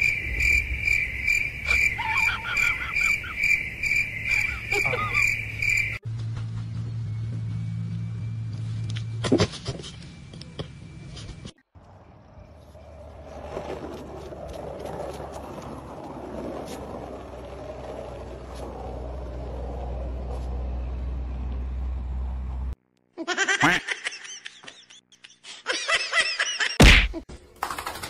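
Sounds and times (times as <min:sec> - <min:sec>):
skateboard wheels rolling on asphalt: 0:00.0 - 0:08.9, 0:11.8 - 0:22.8.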